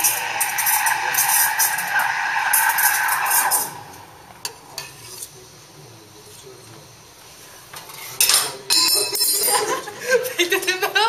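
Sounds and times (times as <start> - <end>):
loud blast of steam: 0.0 - 4.8
steam wand hissing: 0.0 - 5.8.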